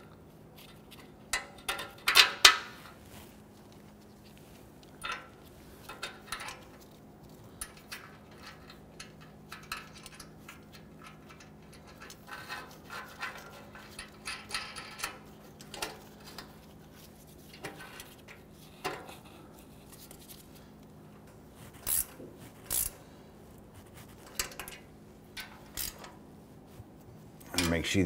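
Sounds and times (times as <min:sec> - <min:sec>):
metallic clicks of bolts being fitted: 0:07.6 - 0:16.5.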